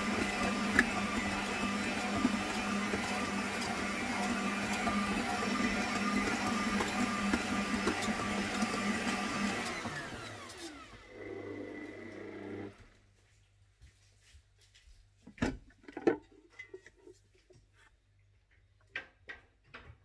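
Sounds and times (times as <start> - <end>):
stand mixer motor whining: 0.0 - 12.9.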